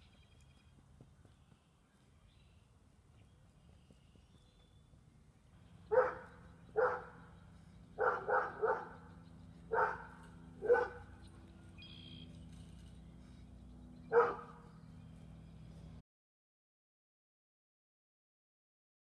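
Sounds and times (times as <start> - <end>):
dog barking: 5.9 - 7.2, 8.0 - 9.0, 9.7 - 11.1, 14.1 - 14.6.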